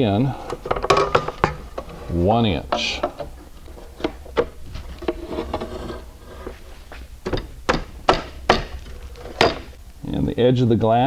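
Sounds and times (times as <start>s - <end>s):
low steady hum: 0.0s - 11.0s
metal bracket clicking and knocking: 0.5s - 5.6s, 7.2s - 9.8s.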